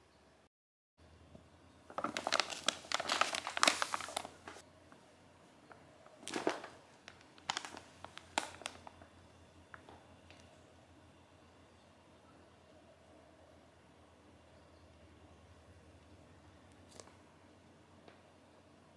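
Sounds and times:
paper bag crinkling: 1.9s - 4.6s, 6.1s - 9.1s.

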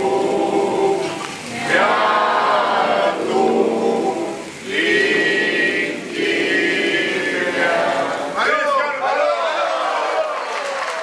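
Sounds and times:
group of voices singing: 0.0s - 8.5s.

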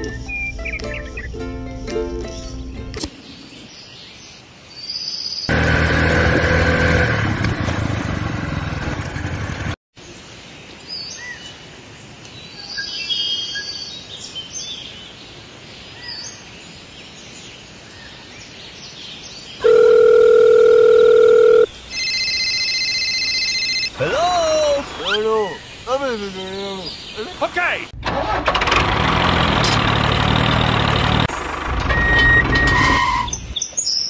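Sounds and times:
loud machine hum: 5.5s - 8.7s
higher ringing tone: 19.6s - 24.0s
steady telephone tone: 19.6s - 24.0s.

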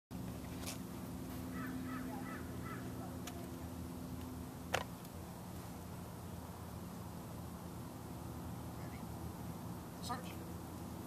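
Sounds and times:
steady low hum: 0.1s - 11.0s
bird harsh calls: 1.5s - 3.4s.

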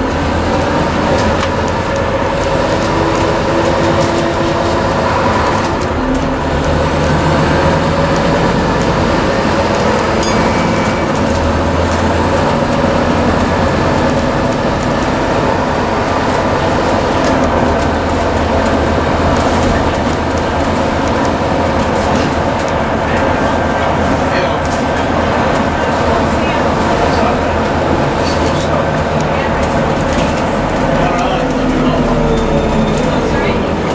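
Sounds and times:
bus diesel engine running: 0.0s - 33.9s.

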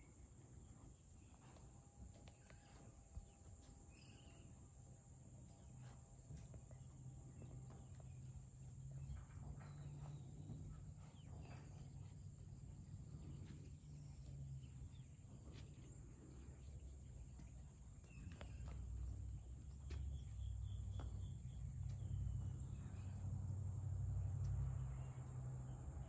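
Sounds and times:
low hum: 0.0s - 26.0s
footsteps on sand: 11.1s - 22.5s.

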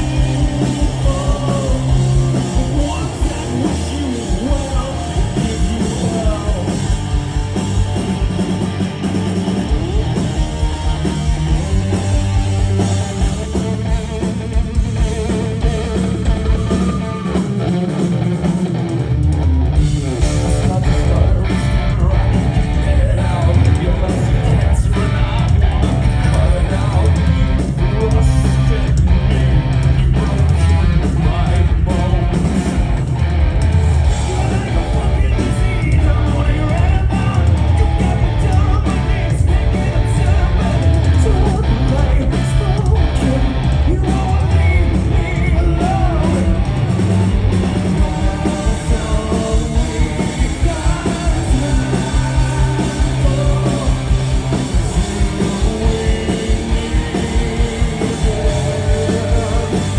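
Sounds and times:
person singing: 0.0s - 7.6s, 20.0s - 32.6s, 34.1s - 47.0s, 47.7s - 59.9s
live rock band playing: 0.0s - 59.9s.

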